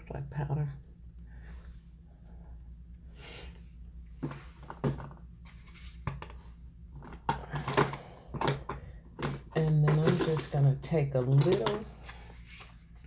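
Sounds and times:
makeup items tapping and knocking: 4.2 - 5.2, 6.0 - 10.6, 11.2 - 12.0.

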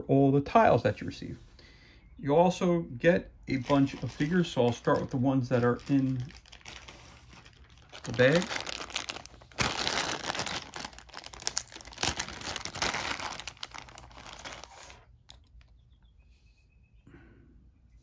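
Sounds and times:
bag tearing: 3.5 - 15.1
plastic bag crinkling: 3.5 - 15.7.

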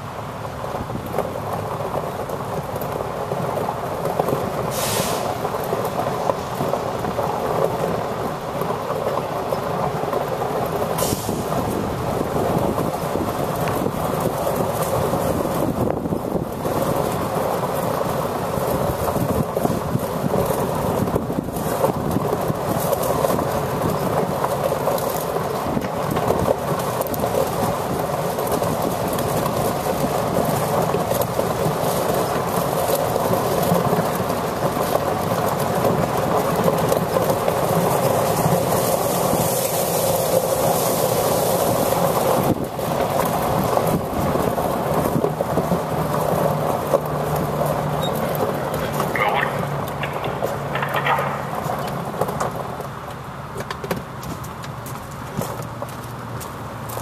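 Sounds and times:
truck engine idling: 45.8 - 55.2.

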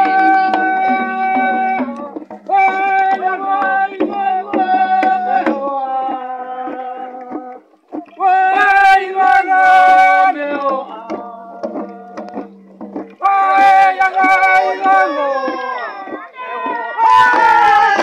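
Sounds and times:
hand drums beating: 0.0 - 18.0
men chanting in long notes: 13.2 - 18.0.

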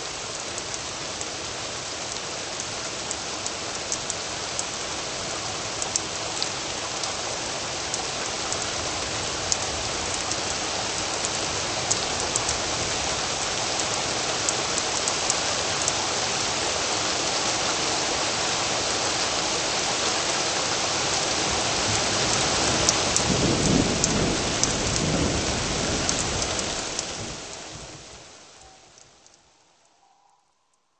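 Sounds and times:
steady rain: 0.0 - 30.1
low rumble of thunder: 21.8 - 28.2.

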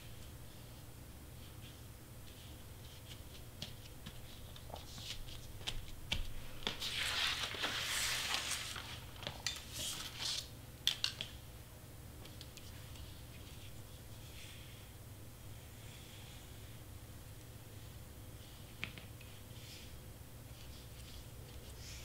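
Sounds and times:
paper sliding across mat: 6.6 - 9.2.

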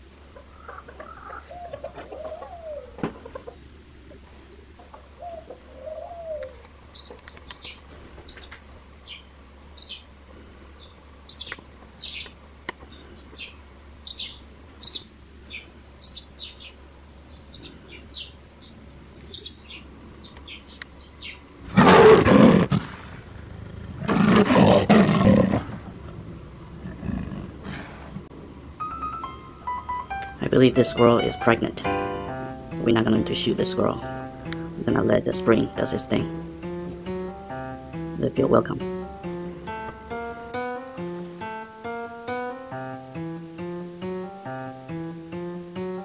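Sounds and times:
small birds chirping: 0.3 - 21.6.

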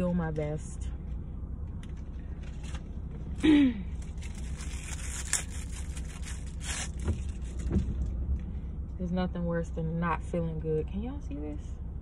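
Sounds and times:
steady low hum: 0.0 - 12.0
plastic packet crinkling: 4.0 - 7.5.

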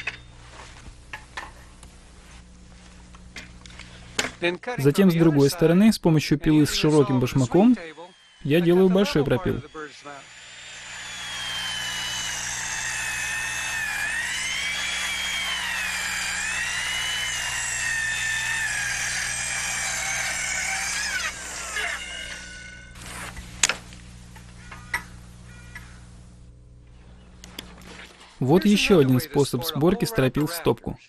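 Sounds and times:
circular saw cutting wood: 6.4 - 26.0.

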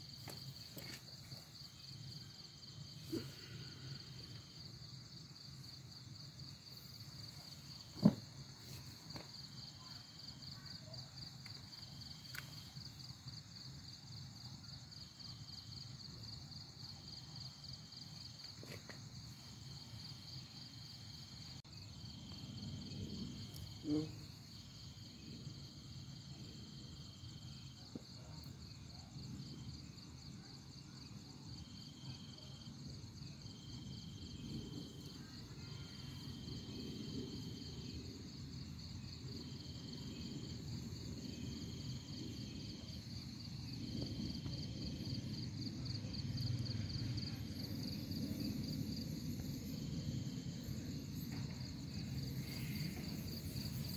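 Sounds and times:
insect high trill: 47.5 - 53.9.

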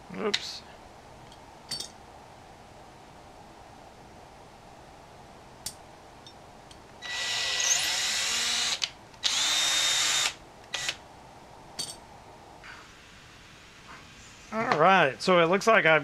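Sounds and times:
cordless drill whining: 7.0 - 11.0.

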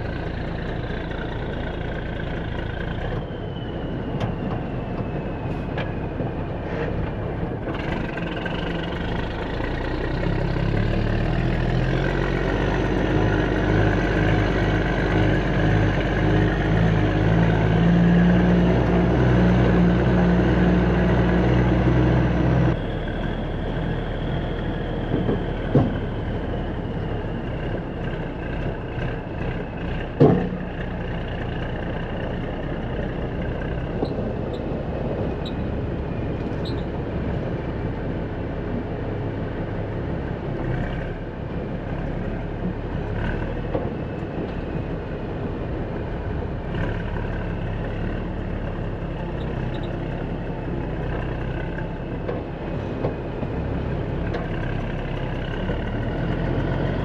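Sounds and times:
high engine whine: 0.0 - 57.0
heavy diesel engine revving: 7.7 - 34.1, 52.7 - 57.0.

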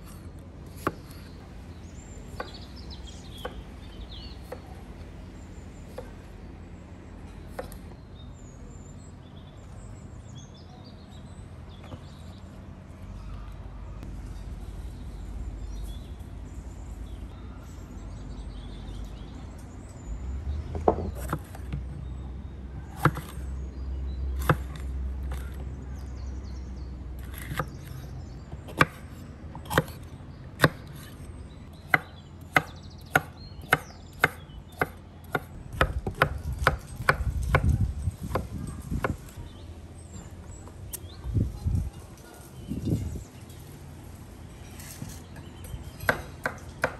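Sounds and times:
knife chopping on wooden board: 22.9 - 23.4, 24.4 - 25.6, 27.2 - 28.0, 28.7 - 29.0, 29.6 - 30.0, 31.9 - 39.2.

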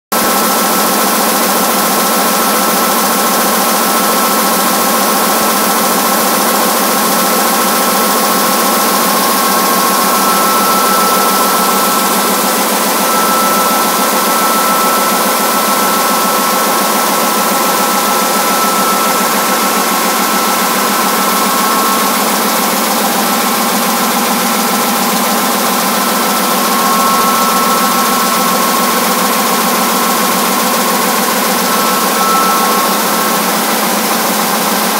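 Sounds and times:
printing press mechanical din: 0.2 - 34.9
high whining tones: 6.6 - 34.9.

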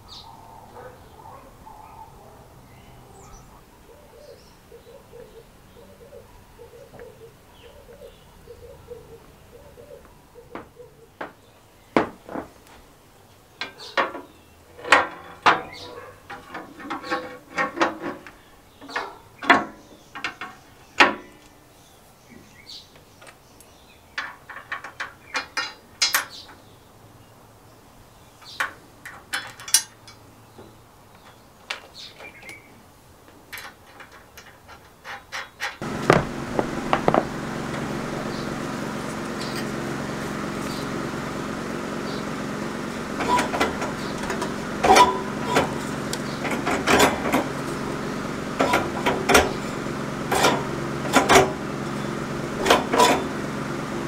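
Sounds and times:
metal clicks and clunks: 13.6 - 21.5, 24.2 - 26.6, 28.4 - 30.2, 33.5 - 38.3, 43.2 - 51.6, 52.6 - 53.4
mechanical hum: 35.5 - 54.0.

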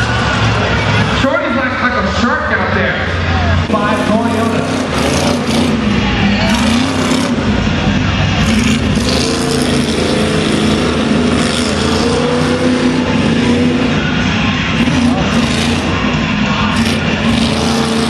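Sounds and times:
truck engine revving hard: 0.0 - 18.0.

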